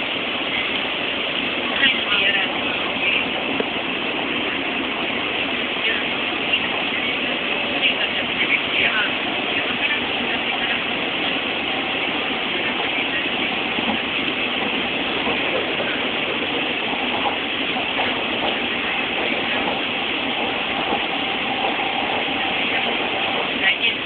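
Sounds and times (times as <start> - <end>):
train running inside carriage: 0.0 - 24.0.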